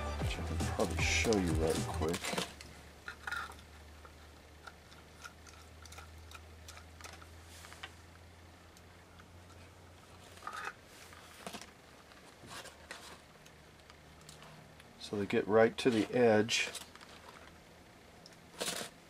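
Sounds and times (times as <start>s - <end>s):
clicks and rustles of plastic box: 1.2s - 3.6s.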